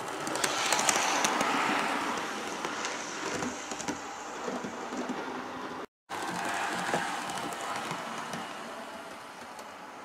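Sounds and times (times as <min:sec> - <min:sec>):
scattered clicks: 0:00.0 - 0:02.8.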